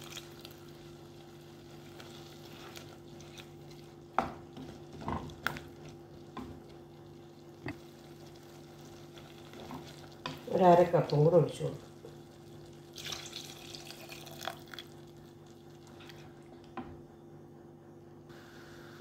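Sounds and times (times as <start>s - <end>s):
spatula stirring curry: 0.0s - 13.0s
faint sizzle: 0.0s - 17.5s, 18.3s - 19.0s.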